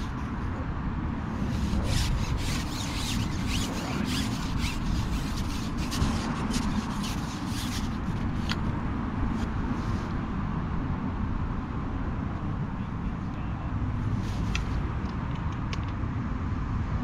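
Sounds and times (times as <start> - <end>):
rubbing and scraping: 1.3 - 8.7.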